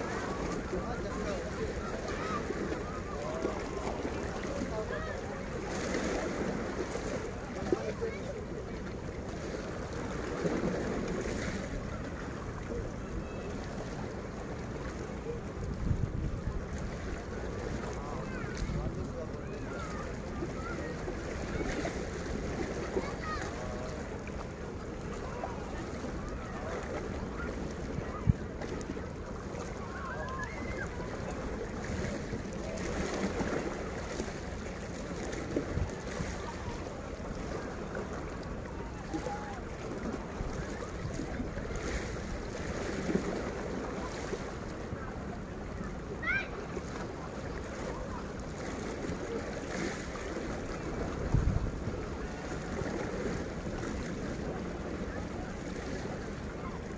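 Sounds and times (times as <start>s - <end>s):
sea waves at the shore: 0.0s - 56.9s
wind rumbling on microphone: 9.3s - 23.3s, 48.9s - 56.9s
wind on microphone: 15.6s - 17.8s, 50.7s - 56.9s.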